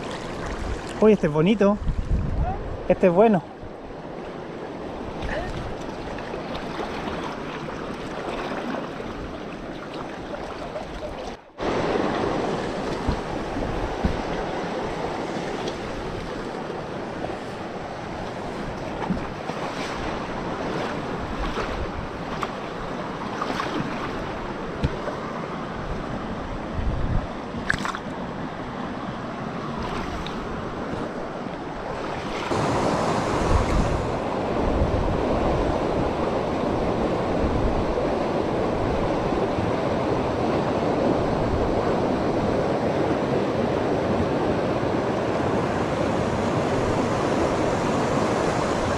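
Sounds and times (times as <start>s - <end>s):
river rushing over rocks: 11.6s - 24.9s.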